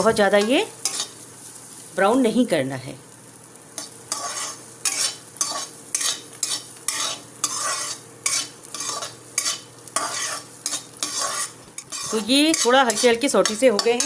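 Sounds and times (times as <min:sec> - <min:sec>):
frying sizzle: 0:00.0 - 0:14.0
spatula scraping steel pan: 0:04.1 - 0:14.0.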